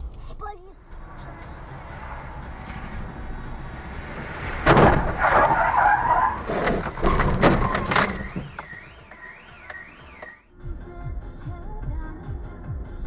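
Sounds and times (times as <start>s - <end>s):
skidding scrape: 0.8s - 10.3s
car crash impact: 1.7s - 10.3s
car alarm wailing: 5.2s - 10.5s.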